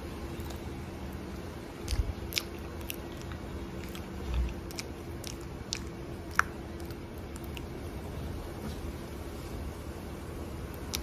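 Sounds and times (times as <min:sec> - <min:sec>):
faint steady hum: 0:00.0 - 0:11.0
person chewing: 0:00.3 - 0:07.8, 0:10.8 - 0:11.0.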